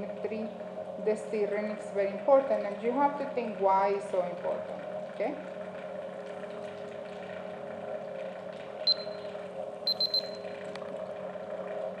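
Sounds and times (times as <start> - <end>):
magnetic stirrer humming: 0.0 - 12.0
short high electronic beeps: 8.9 - 9.2, 9.9 - 10.4.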